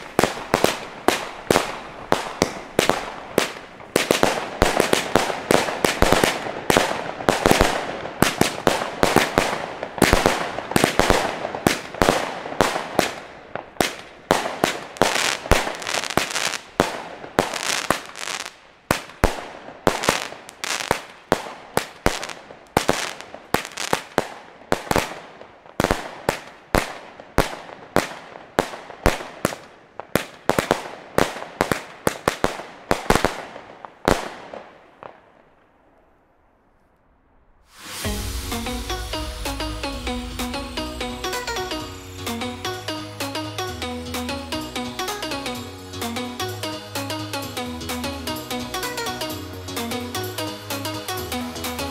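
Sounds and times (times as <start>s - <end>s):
firework bangs and bursts: 0.0s - 35.2s, 37.7s - 42.4s.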